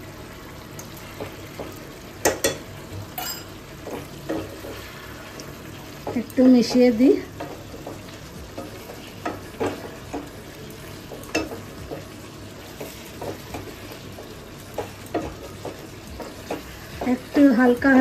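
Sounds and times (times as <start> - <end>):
curry sizzling: 0.0 - 18.0
spatula scraping a pan: 3.2 - 10.3, 11.3 - 17.6.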